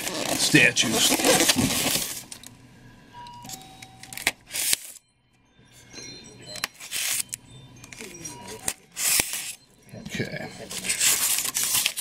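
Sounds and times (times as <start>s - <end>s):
styrofoam container rustling: 0.0s - 2.4s, 10.7s - 12.0s.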